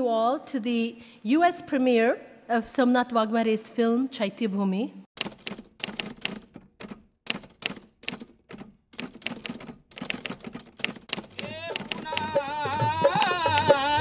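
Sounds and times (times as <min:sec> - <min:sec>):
typewriter key clacks: 0:05.2 - 0:12.3.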